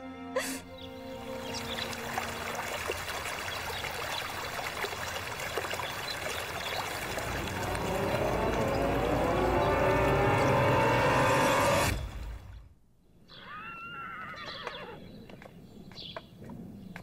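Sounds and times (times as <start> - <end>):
music: 0.0 - 2.7
waterfall rushing: 1.1 - 12.4.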